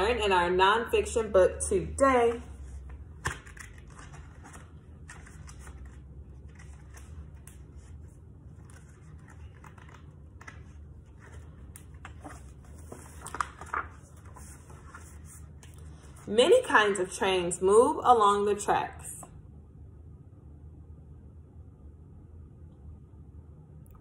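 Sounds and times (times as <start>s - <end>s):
steady low hum: 0.0s - 24.0s
book rustles and taps: 2.3s - 7.9s.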